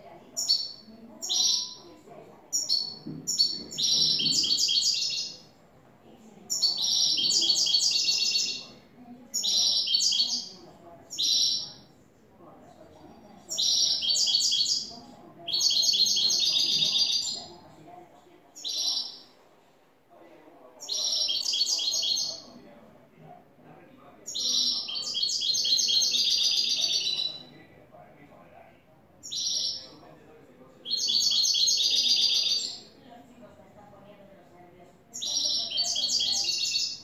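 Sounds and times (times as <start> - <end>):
goldfinch singing: 0.4 - 1.8, 2.5 - 5.4, 6.5 - 8.7, 13.5 - 14.9, 24.3 - 27.5, 29.2 - 29.8, 30.9 - 32.8.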